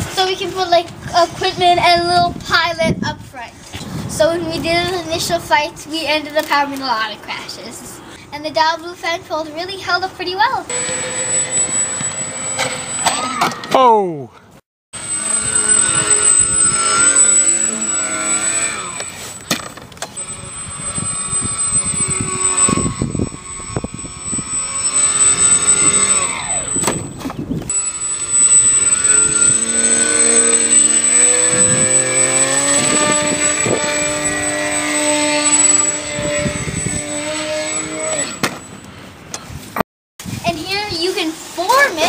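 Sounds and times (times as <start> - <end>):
wind rumble on microphone: 0.0 - 6.0, 20.2 - 27.8, 29.2 - 37.6, 39.4 - 41.0
rc plane electric motors whining: 10.7 - 13.7, 15.0 - 39.0.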